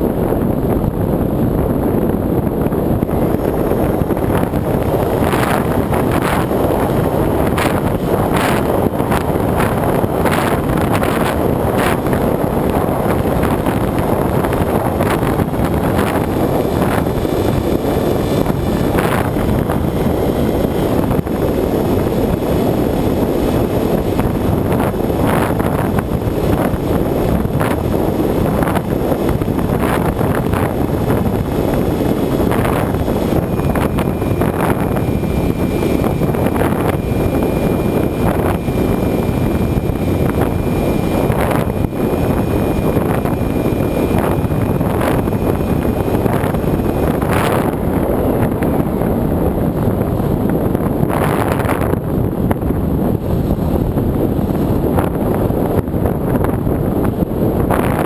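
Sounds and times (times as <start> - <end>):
electric motor and propeller: 0.0 - 58.0
wind buffeting microphone: 0.0 - 58.0.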